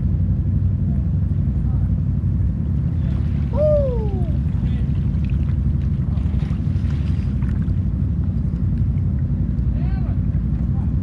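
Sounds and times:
quad bike engine rumble: 0.0s - 11.0s
water sloshing and churning: 2.0s - 11.0s
rising and falling call: 3.5s - 4.4s.

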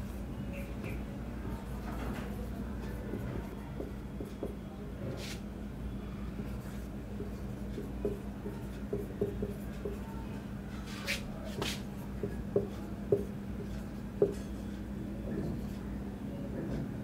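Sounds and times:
marker pen writing on whiteboard: 2.1s - 4.6s, 6.4s - 10.1s, 11.1s - 14.7s.

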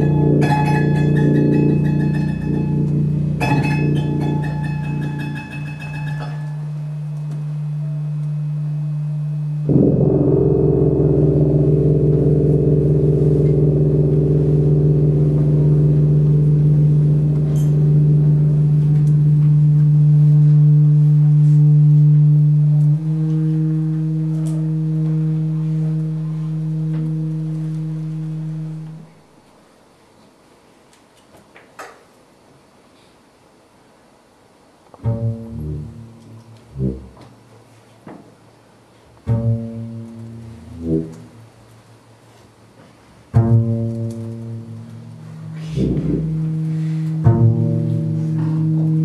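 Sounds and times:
higher sustained tones: 0.0s - 29.2s, 44.8s - 49.0s
low drone: 0.0s - 29.2s, 43.7s - 49.0s.

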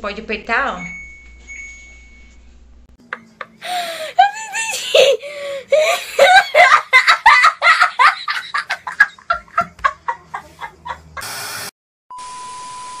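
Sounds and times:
boy laughing hard: 3.3s - 11.2s
hiss: 11.2s - 11.7s
tv static burst: 11.2s - 11.7s.

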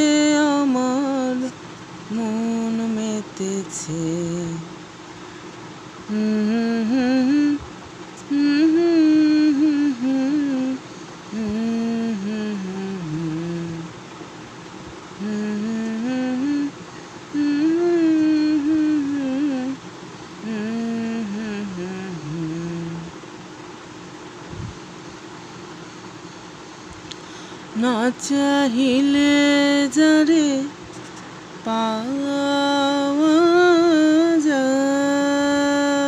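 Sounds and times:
person humming a melody: 0.0s - 4.7s, 6.1s - 13.9s, 15.2s - 19.8s, 20.4s - 23.2s, 27.8s - 30.8s, 31.6s - 36.0s
faint steady drone: 0.0s - 36.0s.

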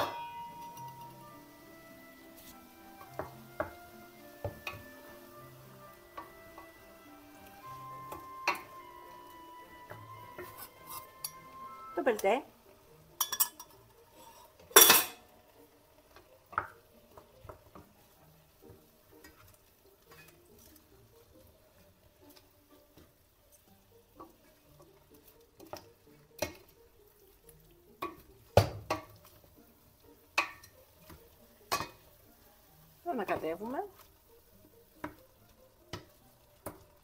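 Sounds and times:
spoon stirring thick stew: 0.4s - 14.8s, 15.6s - 37.0s
spoon knocking against pot: 28.0s - 29.2s, 30.4s - 32.0s.

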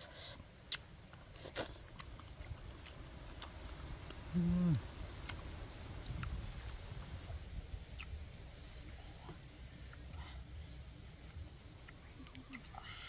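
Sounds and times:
person chewing: 0.0s - 5.4s
person humming low: 4.3s - 4.9s.

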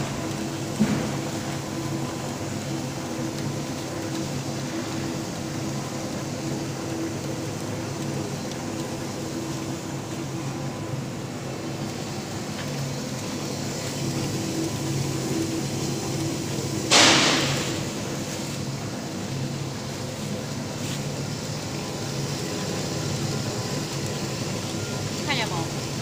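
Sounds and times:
machine running hum: 0.0s - 26.0s
sudden loud burst of noise: 16.9s - 18.3s.

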